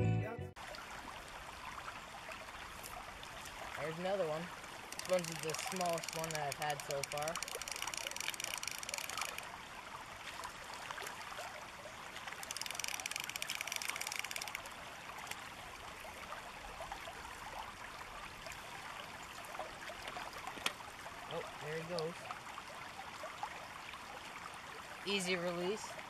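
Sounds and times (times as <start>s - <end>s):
river water running over riffle: 0.6s - 26.0s
fishing reel ratcheting clicks: 4.9s - 9.5s, 12.4s - 15.4s.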